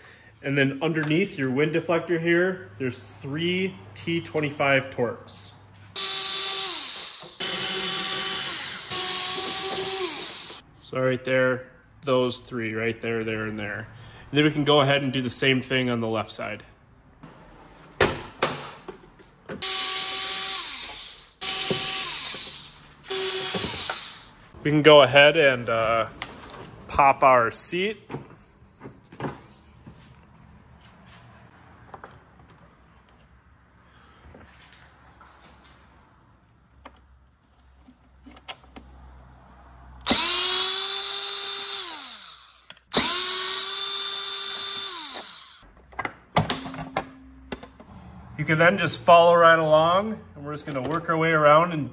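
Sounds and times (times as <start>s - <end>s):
electric screwdriver motor whine: 6.0s - 10.6s, 19.6s - 24.3s, 40.1s - 45.6s.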